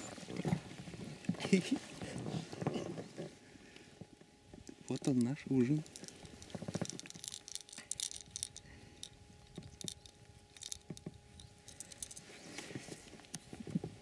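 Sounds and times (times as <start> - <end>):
clicks knocks and rustles of handling: 4.5 - 14.0.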